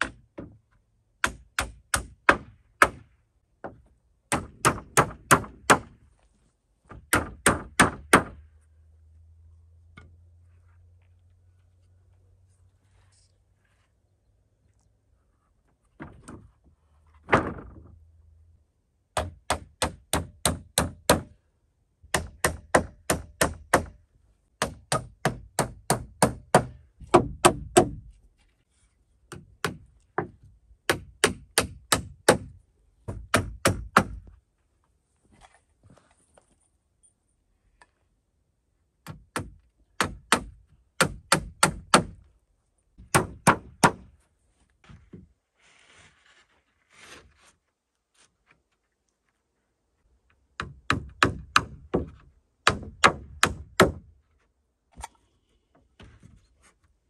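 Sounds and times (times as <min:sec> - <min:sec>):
hammer driving nails into wood: 0:01.2 - 0:03.1, 0:03.7 - 0:06.0, 0:19.2 - 0:21.4, 0:22.1 - 0:24.0, 0:24.6 - 0:28.1, 0:29.3 - 0:34.3, 0:39.0 - 0:42.2, 0:43.0 - 0:44.1, 0:50.6 - 0:54.1
wooden board thump: 0:17.2 - 0:18.0.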